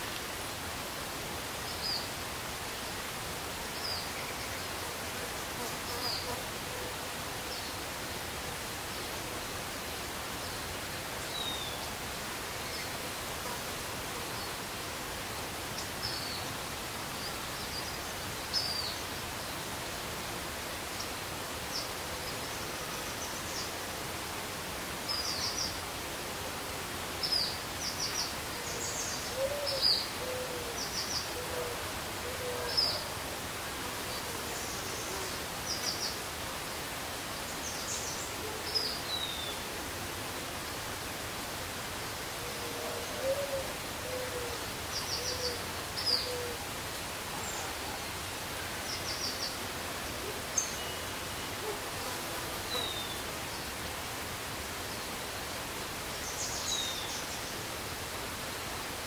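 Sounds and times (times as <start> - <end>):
steady background hiss: 0.0 - 59.0.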